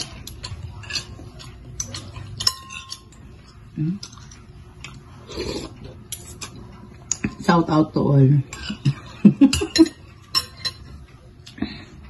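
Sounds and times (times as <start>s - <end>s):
spoon and fork clinking on bowl: 1.8s - 3.2s, 9.5s - 11.0s.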